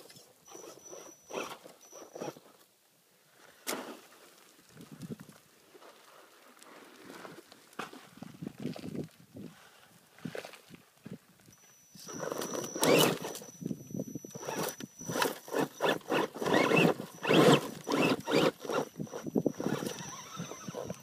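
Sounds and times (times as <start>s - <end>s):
electric motor whine: 12.0s - 21.0s
tyres scraping and crunching on rock: 12.0s - 21.0s.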